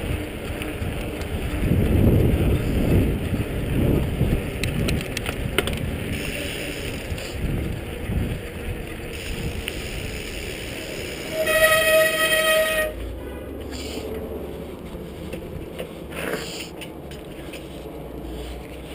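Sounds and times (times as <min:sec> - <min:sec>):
wind buffeting microphone: 0:00.0 - 0:13.0
tyre rumble on asphalt: 0:00.0 - 0:18.9.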